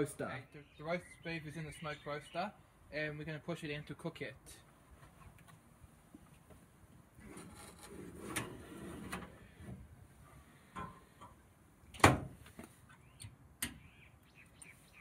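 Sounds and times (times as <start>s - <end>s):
metal tray scraping and rattling: 7.2s - 9.3s.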